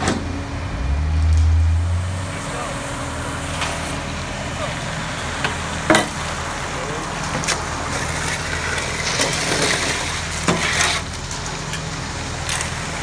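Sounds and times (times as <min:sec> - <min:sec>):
truck engine running: 0:00.0 - 0:13.0
wet concrete sliding and slopping: 0:06.9 - 0:13.0.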